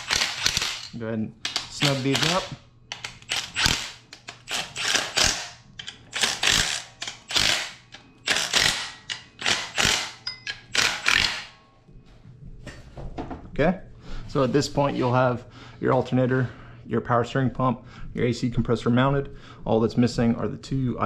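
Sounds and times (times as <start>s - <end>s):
small clicks of tool and bolts: 0.0s - 11.5s
impact wrench hammering bolts: 0.0s - 11.6s.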